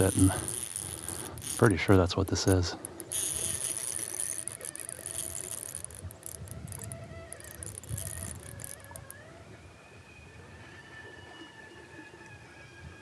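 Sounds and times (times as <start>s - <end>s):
fishing reel ticking: 0.0s - 9.2s
low rumbling handling noise: 0.0s - 9.2s.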